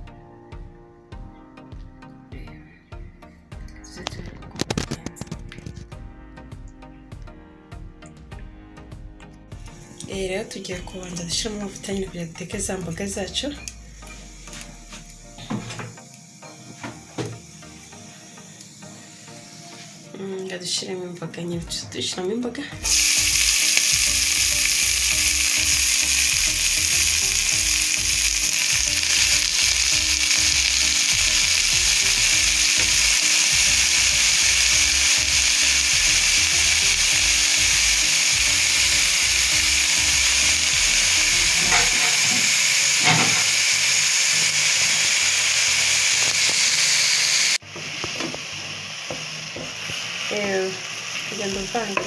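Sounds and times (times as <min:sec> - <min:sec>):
spinach sizzling in hot oil: 0:09.6 - 0:20.7, 0:22.8 - 0:52.0.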